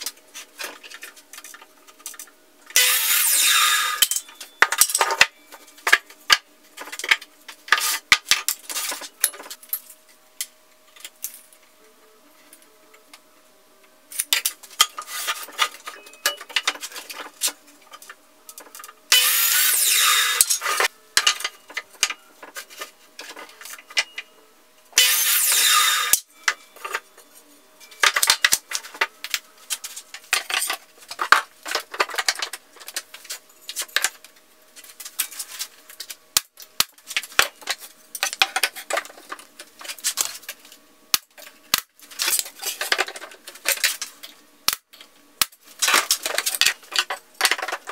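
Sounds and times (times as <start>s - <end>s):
miter saw cutting wood: 2.8s - 4.0s, 19.1s - 20.9s, 25.0s - 26.2s
wooden boards and tools clattering: 29.7s - 34.1s, 45.8s - 47.9s.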